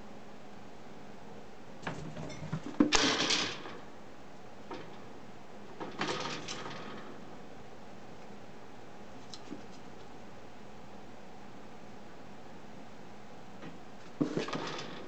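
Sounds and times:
pet gate knocking and rattling: 0:01.8 - 0:03.9, 0:05.8 - 0:07.3, 0:14.2 - 0:15.0.

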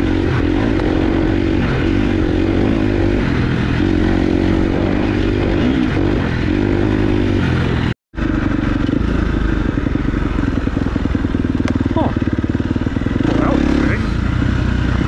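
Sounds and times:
off-road motorcycle engine: 0:00.0 - 0:15.0.

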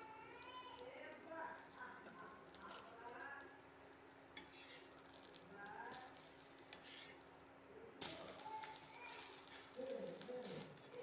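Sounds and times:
faint steady hum: 0:00.0 - 0:11.0
spatula scraping on pan: 0:04.4 - 0:05.4, 0:06.1 - 0:07.3.

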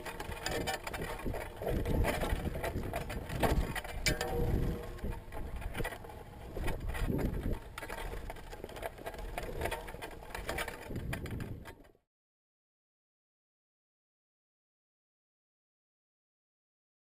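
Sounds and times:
rig clicks and knocks: 0:00.0 - 0:11.8
wind buffeting rumble: 0:00.0 - 0:11.8.

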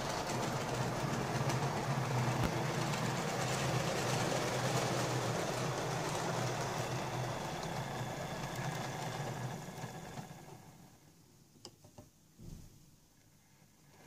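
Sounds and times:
model train motor whirring: 0:00.0 - 0:10.8
wheels running on track: 0:00.0 - 0:11.0.

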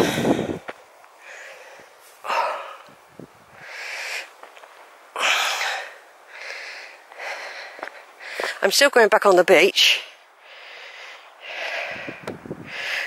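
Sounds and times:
person breathing heavily: 0:00.0 - 0:04.4, 0:05.1 - 0:08.6, 0:10.0 - 0:13.0.

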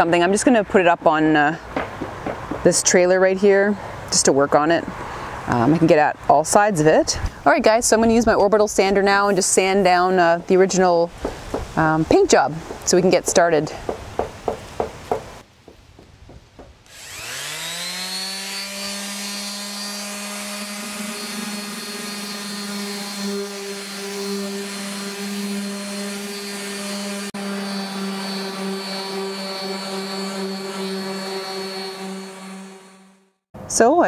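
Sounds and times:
orbital sander whining: 0:16.6 - 0:33.4.

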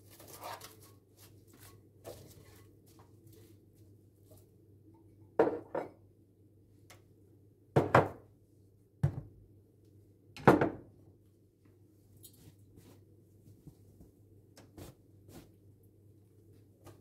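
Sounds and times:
kitchen items knocking on countertop: 0:05.4 - 0:06.0, 0:07.8 - 0:08.2, 0:09.0 - 0:09.3, 0:10.4 - 0:10.9.

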